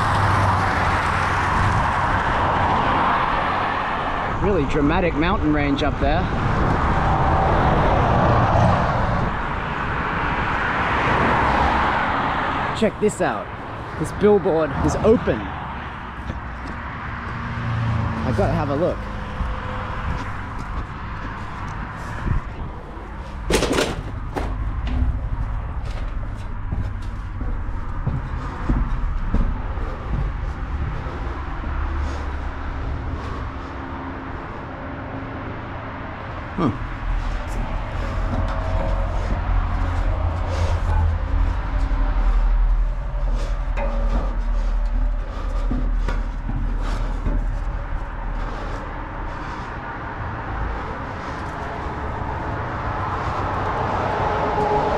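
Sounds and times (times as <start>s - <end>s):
steady low rumble: 9.0s - 54.9s
metallic bangs and knocks: 12.8s - 33.8s, 36.8s - 49.8s
low rumble: 36.9s - 54.0s.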